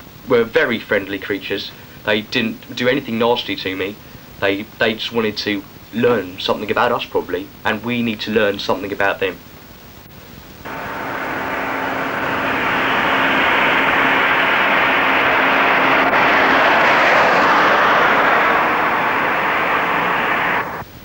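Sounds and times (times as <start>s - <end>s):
faint steady hum: 0.0s - 21.0s
loud rushing roar: 10.7s - 20.8s.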